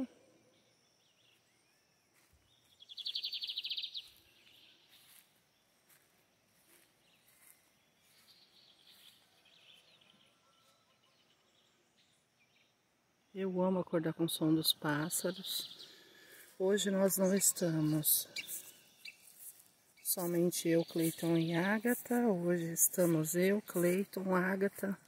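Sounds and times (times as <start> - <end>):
faint high bird calls: 0.0 - 5.2, 7.1 - 12.7, 15.2 - 21.6.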